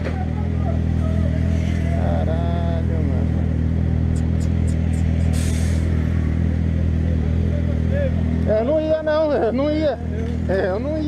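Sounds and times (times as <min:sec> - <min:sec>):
sharp clicks: 0:04.1 - 0:05.5
short hiss: 0:04.2 - 0:05.9.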